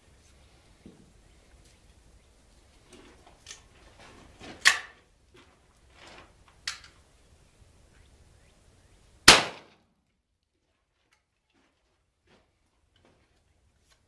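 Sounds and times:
shotgun shot with echo: 9.3s - 9.8s.

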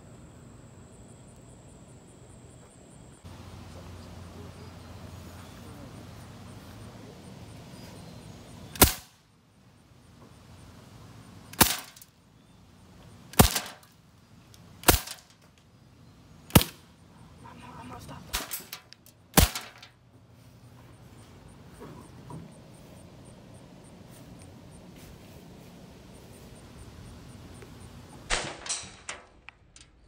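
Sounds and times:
bb gun shots cracking: 8.8s - 9.2s, 11.5s - 12.0s, 13.3s - 13.9s, 14.8s - 15.3s, 16.5s - 16.8s, 18.3s - 19.9s, 28.3s - 29.3s.

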